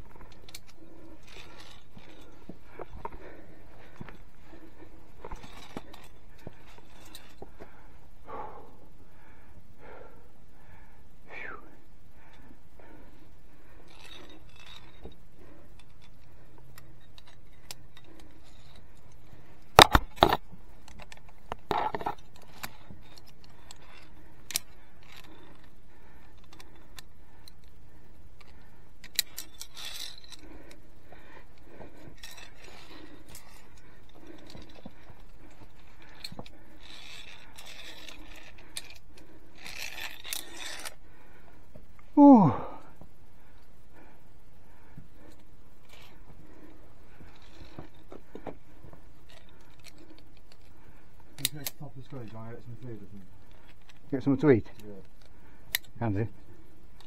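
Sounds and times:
scraping rustle: 0.0s - 7.5s, 31.8s - 41.0s
carabiners clinking on steel cable: 0.0s - 8.7s, 12.3s - 57.0s.

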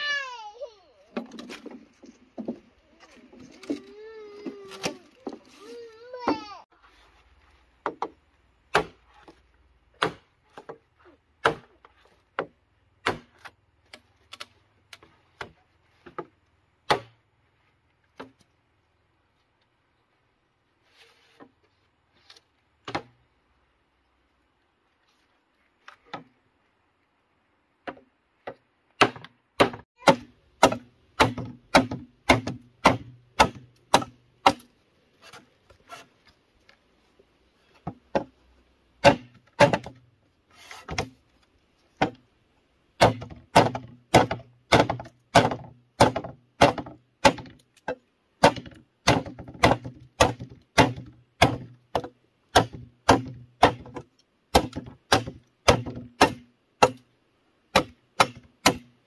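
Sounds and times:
knife chopping bamboo: 7.8s - 10.8s, 11.4s - 16.2s, 16.8s - 17.2s, 29.0s - 34.7s, 39.0s - 40.0s, 43.0s - 57.0s, 57.7s - 58.9s.

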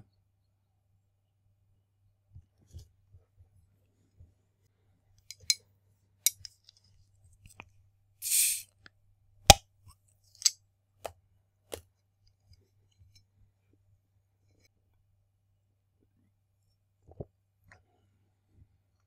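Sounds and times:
short hiss: 8.2s - 8.8s.

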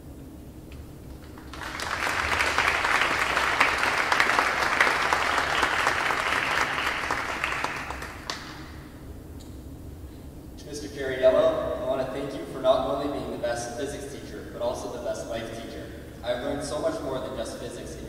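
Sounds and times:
audience applauding: 1.2s - 8.8s.

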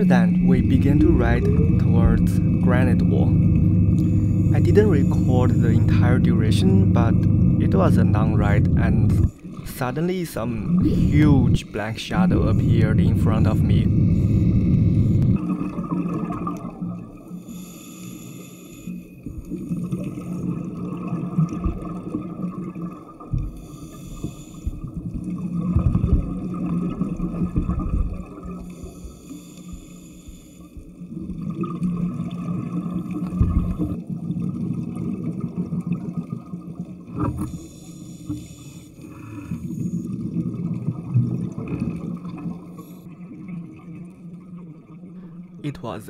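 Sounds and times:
exhaled bubbles: 0.0s - 17.8s, 18.8s - 29.2s, 30.8s - 45.8s
underwater motor humming: 0.0s - 46.0s
diver regulator breaths: 13.8s - 15.4s, 17.2s - 19.2s, 23.4s - 25.0s, 28.5s - 31.0s, 37.4s - 40.1s, 42.6s - 43.2s.

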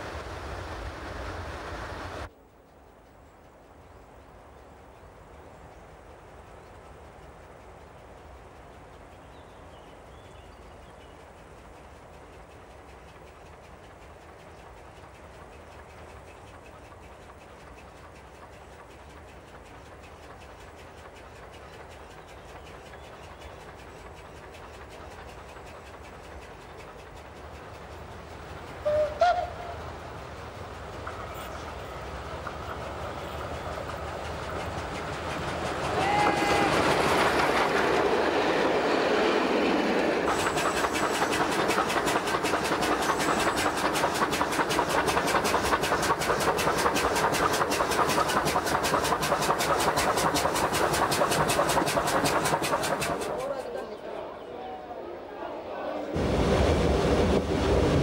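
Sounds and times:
steam locomotive passing: 0.0s - 58.0s
fast chuffing exhaust beat: 5.5s - 53.8s
steam whistle blasts: 28.9s - 29.8s.

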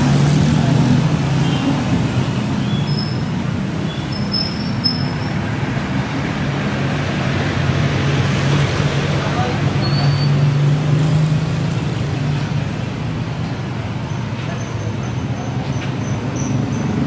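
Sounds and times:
motorcycle engines passing: 0.0s - 17.0s
short high squeaks: 2.7s - 5.4s, 9.8s - 10.4s.

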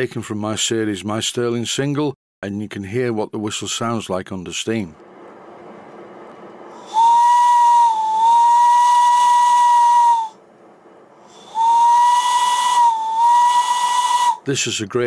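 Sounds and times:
steam hiss: 6.7s - 10.3s, 11.2s - 14.4s
steam whistle blasts: 6.8s - 10.4s, 11.3s - 14.5s.

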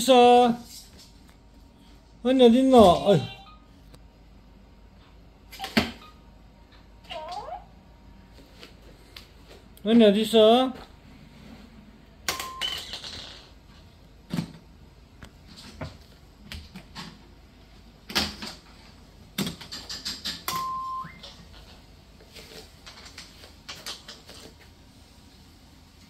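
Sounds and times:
plastic toys clicking and knocking: 19.4s - 20.6s.

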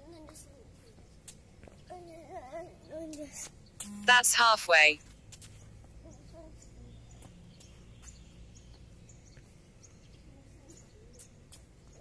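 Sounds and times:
low steady hum: 3.2s - 5.0s.

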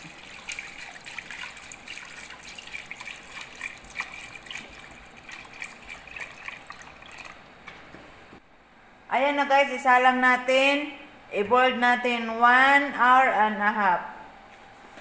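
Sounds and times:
water pouring into a metal pot: 0.0s - 7.5s.

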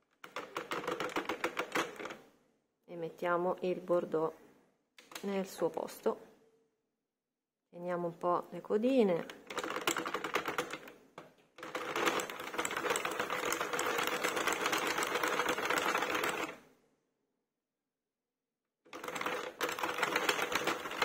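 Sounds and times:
knitting machine clicking clatter: 0.0s - 2.2s, 9.2s - 16.6s, 18.9s - 21.0s.

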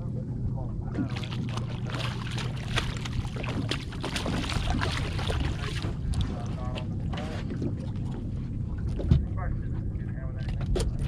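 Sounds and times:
steady low hum: 0.0s - 11.0s
fish splashing: 1.0s - 8.6s.

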